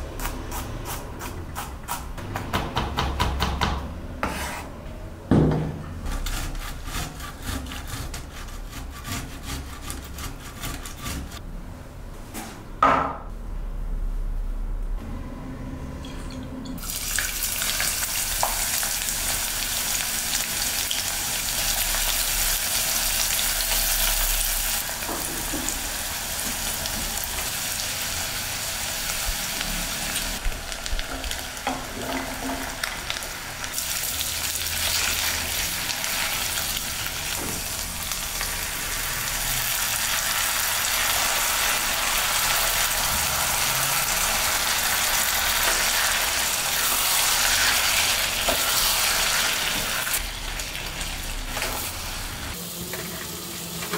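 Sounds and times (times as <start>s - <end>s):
spatula scraping a pan: 4.2s - 4.8s, 6.0s - 11.4s
vegetables sizzling in hot oil: 16.8s - 53.9s.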